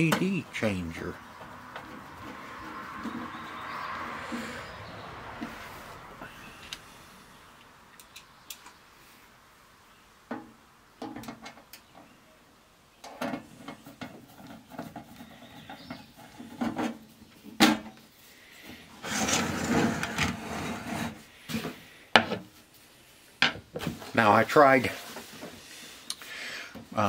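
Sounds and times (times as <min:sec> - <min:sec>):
unit scraping on bench: 0:19.0 - 0:21.2.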